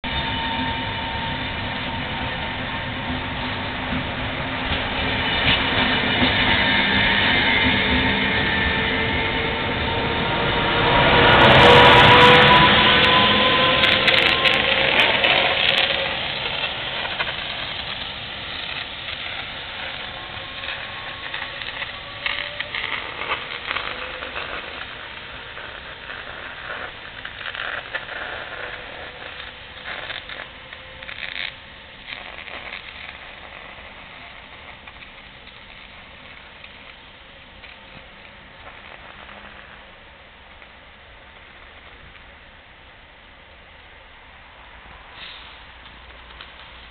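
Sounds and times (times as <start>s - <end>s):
wheels clicking on rails: 0.0s - 44.0s
train running noise: 0.0s - 46.9s.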